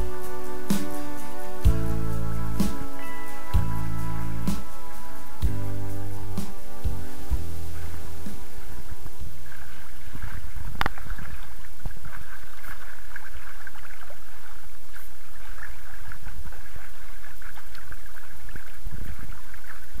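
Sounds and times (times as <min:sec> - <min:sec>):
water rushing along boat bow: 0:07.1 - 0:20.0.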